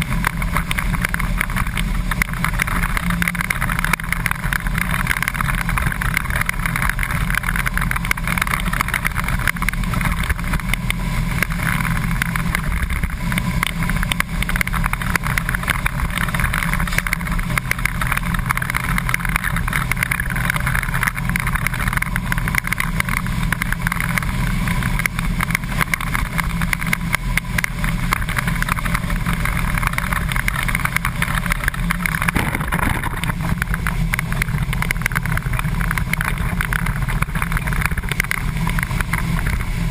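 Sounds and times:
bus engine running: 0.0 - 39.9.

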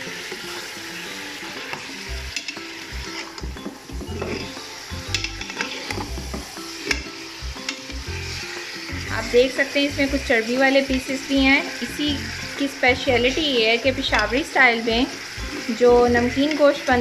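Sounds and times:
meat sizzling in hot oil: 0.0 - 17.0
metal spoon scraping pot: 1.7 - 3.5, 4.1 - 6.2.

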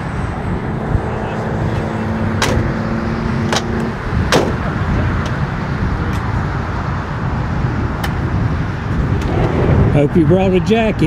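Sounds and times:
wind buffeting microphone: 0.0 - 11.0
sharp clicks or knocks: 2.4 - 2.7, 3.5 - 4.6.

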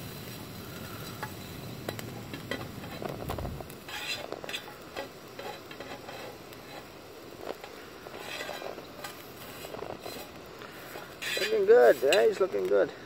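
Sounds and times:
bacon sizzling in a pan: 0.0 - 13.0
metal fork clicking and scraping: 3.8 - 6.9, 7.5 - 9.3, 10.9 - 12.3.

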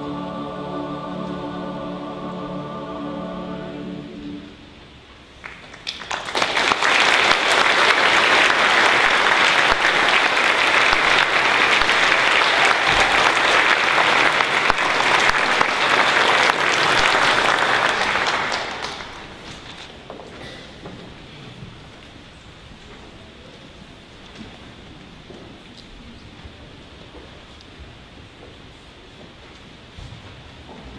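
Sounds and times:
choir singing: 0.0 - 4.9, 7.1 - 19.3
audience applauding: 5.4 - 20.0.

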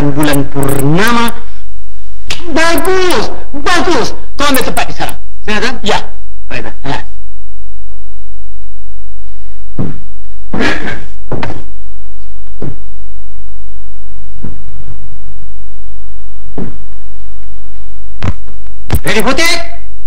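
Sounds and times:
steady low hum: 0.0 - 20.0
thumps and knocks: 9.8 - 11.7, 12.5 - 12.8, 14.4 - 14.6, 16.5 - 16.9.

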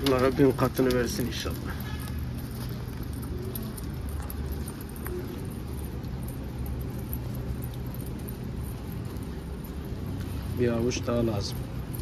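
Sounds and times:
pigeons pecking at grain: 0.0 - 12.0.

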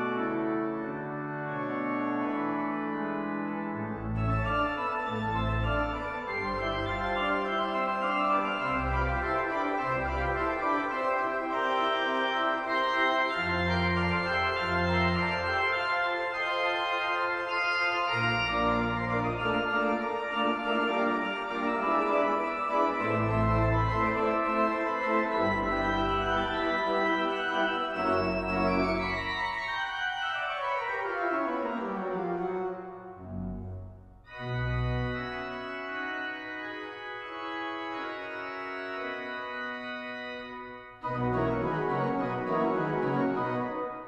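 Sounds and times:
detached organ pedal bass notes: 0.0 - 44.0
pipe organ playing fast toccata: 0.0 - 44.0.

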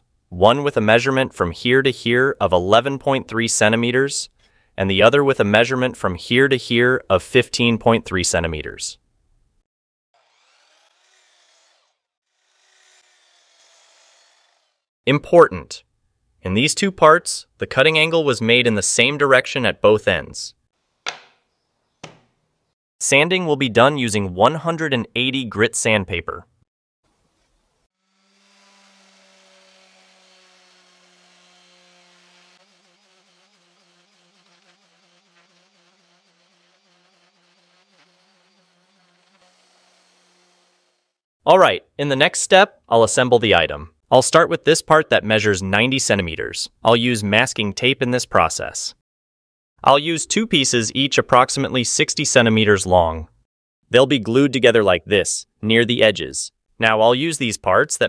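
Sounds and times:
miter saw cutting wood: 10.2 - 14.9, 27.4 - 41.2
orbital sander humming: 27.9 - 41.1.

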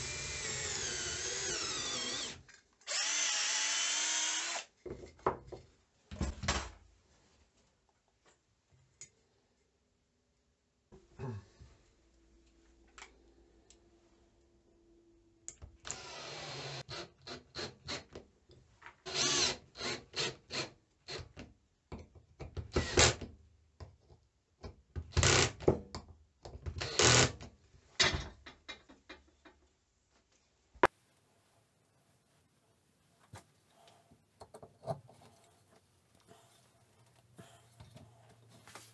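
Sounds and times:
cordless drill bursts: 0.0 - 4.7.

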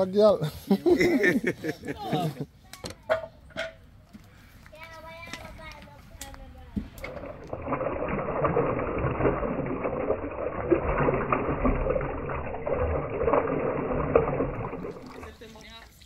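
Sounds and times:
water pouring into metal pot: 6.9 - 15.8.

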